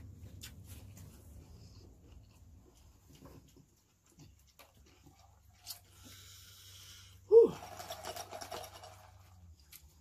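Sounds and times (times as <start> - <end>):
straw scraping and rattling in cup: 7.5 - 10.0.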